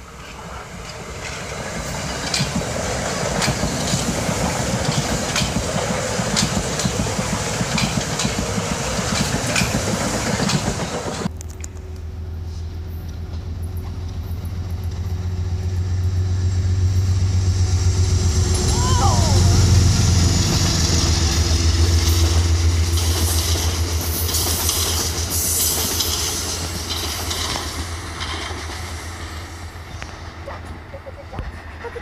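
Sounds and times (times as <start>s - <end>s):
diesel locomotive engine drone: 0.0s - 32.0s
train wheels rolling on rails: 0.0s - 32.0s
wheels clicking over rail joints: 0.2s - 12.1s, 21.3s - 32.0s.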